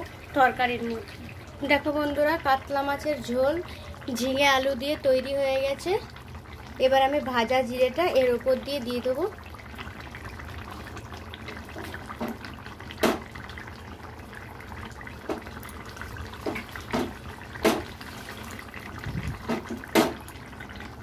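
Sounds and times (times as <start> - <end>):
curry bubbling: 0.0 - 21.0.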